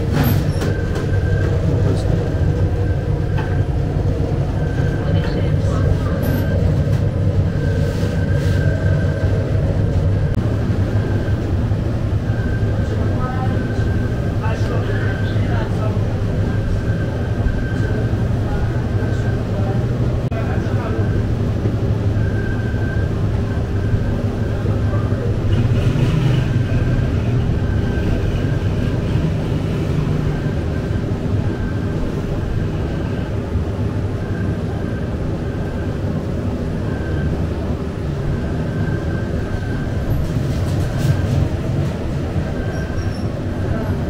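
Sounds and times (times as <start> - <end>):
machinery humming and rumbling: 0.0 - 44.0.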